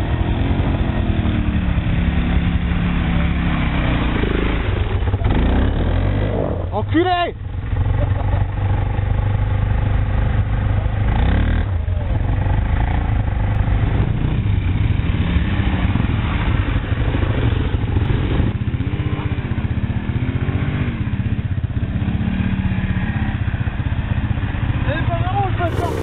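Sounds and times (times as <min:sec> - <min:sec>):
quad engine revving: 0:00.0 - 0:06.8, 0:25.6 - 0:26.0.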